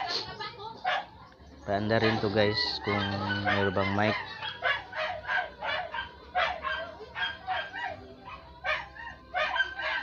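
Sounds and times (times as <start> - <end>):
animal yelping: 2.0 - 10.0.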